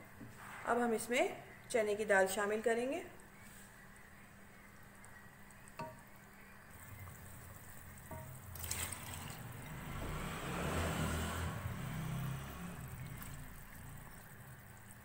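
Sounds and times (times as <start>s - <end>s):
lentils pouring and splashing into broth: 6.7s - 10.2s, 12.2s - 15.0s.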